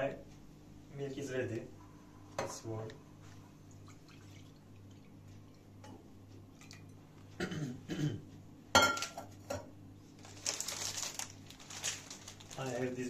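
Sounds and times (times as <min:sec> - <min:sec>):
plastic packet crinkling: 0:10.2 - 0:13.0.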